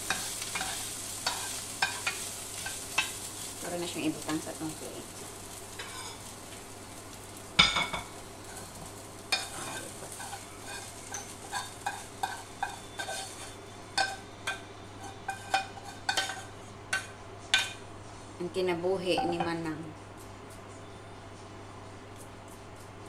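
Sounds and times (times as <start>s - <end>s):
food sizzling: 0.0s - 18.0s, 18.6s - 19.9s
metal spatula scraping frying pan: 0.1s - 3.2s, 5.8s - 6.3s, 8.4s - 17.8s.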